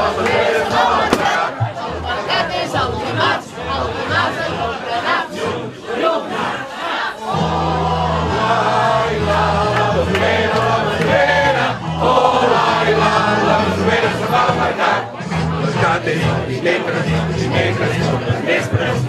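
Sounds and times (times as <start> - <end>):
men and women singing together: 0.0 - 19.0.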